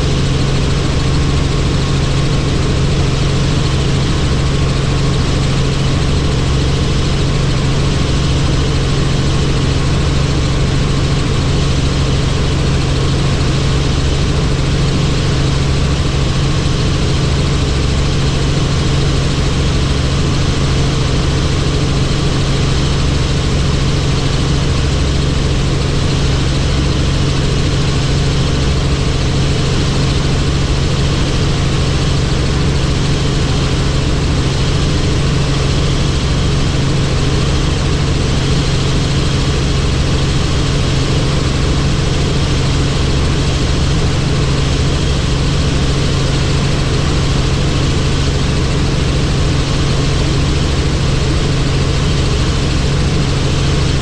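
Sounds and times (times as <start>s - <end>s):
helicopter engine and rotor: 0.0s - 54.0s.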